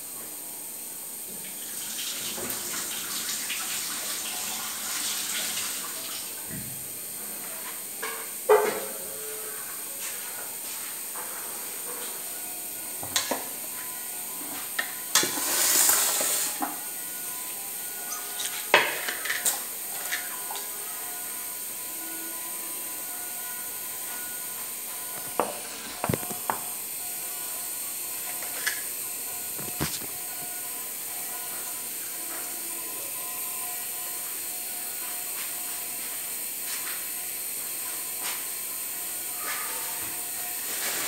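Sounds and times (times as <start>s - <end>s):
steady hiss: 9.2s - 41.0s.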